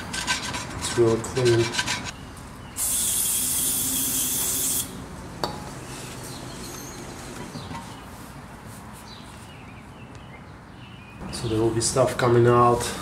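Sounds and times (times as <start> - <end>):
aerosol spray hissing: 2.8 - 4.9.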